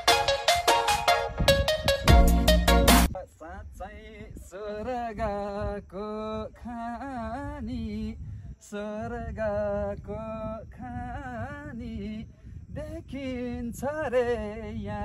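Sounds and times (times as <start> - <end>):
man singing unaccompanied: 3.1 - 15.0.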